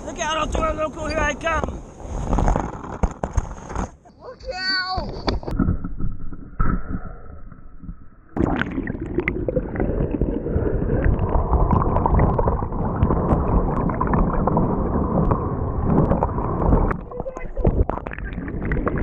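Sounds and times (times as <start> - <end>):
surf churning underwater: 5.3 - 19.0.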